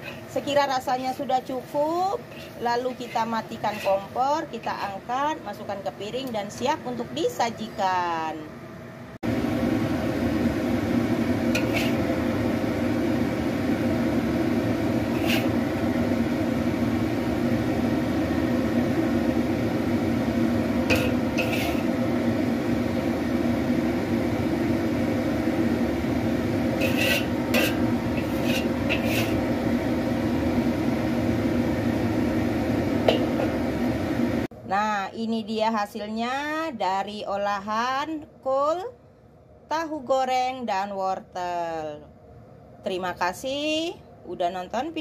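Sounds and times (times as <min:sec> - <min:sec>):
metal spatula scraping ceramic plate: 0:00.0 - 0:00.3, 0:02.3 - 0:04.1, 0:11.6 - 0:12.1, 0:15.1 - 0:15.6, 0:20.9 - 0:21.9, 0:26.8 - 0:29.4
loud whirring hum: 0:00.0 - 0:35.1.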